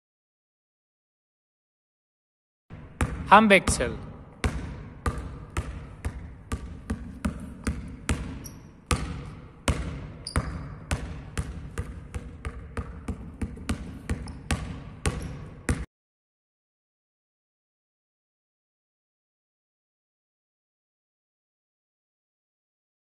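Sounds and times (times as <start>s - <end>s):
basketball bouncing on floor: 2.7s - 15.9s.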